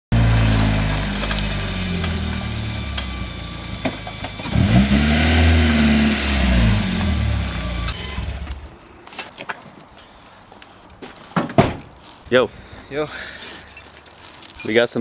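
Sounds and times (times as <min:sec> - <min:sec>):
car engine idling and revving: 0:00.1 - 0:08.7.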